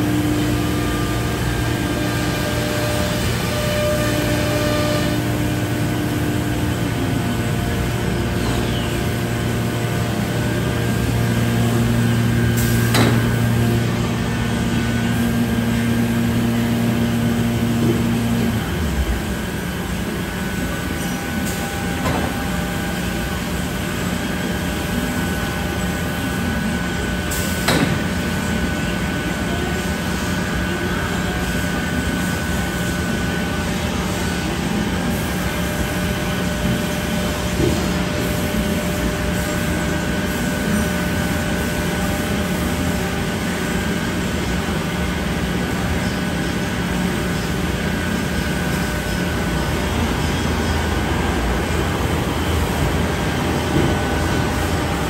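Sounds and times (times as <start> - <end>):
machine whining tones: 0.0 - 29.8
machinery humming: 0.0 - 55.0.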